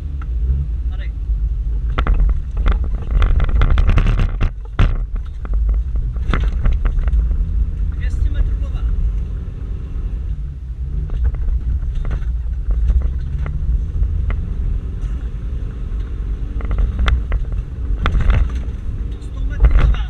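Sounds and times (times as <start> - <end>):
car engine rumble from cabin: 0.0 - 20.0
sharp knocks and rattles: 1.8 - 8.6, 11.0 - 15.3, 16.0 - 20.0.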